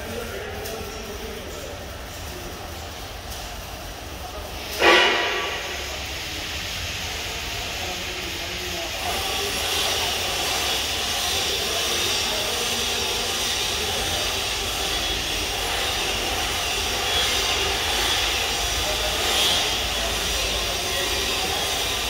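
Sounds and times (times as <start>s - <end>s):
loud machine rumble and hiss: 0.0s - 22.0s.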